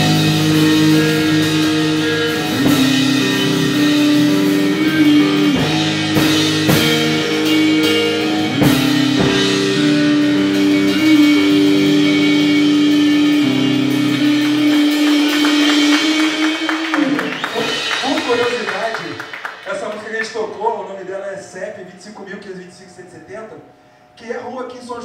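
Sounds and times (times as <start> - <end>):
drum kit hits: 0.0 - 20.4
electric guitar ringing chords: 0.0 - 25.0.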